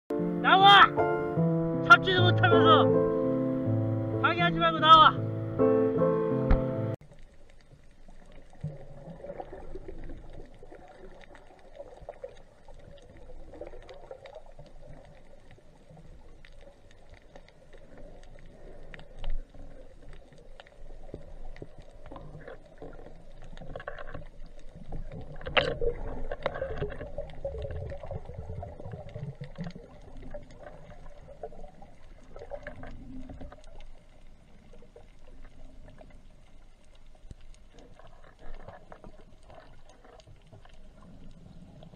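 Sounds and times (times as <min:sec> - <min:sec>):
muffled underwater water wash: 0:06.4 - 0:41.9
faint underwater clicks: 0:06.5 - 0:41.9.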